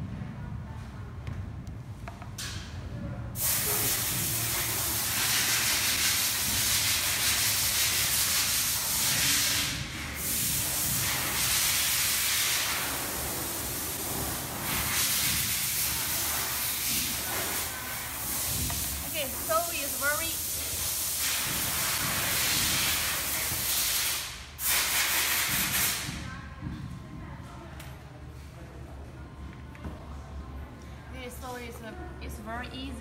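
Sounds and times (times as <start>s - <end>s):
loud steady hiss: 3.4s - 26.2s.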